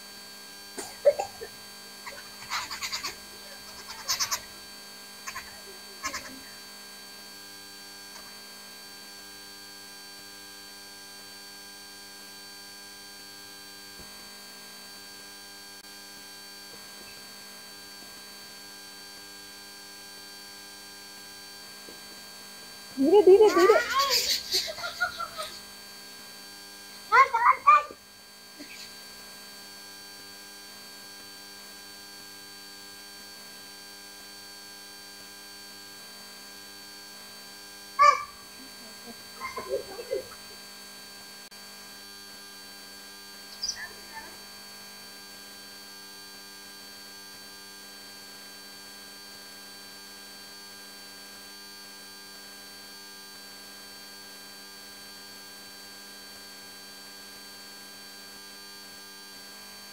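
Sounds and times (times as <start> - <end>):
steady hum with overtones: 0.0 - 47.5.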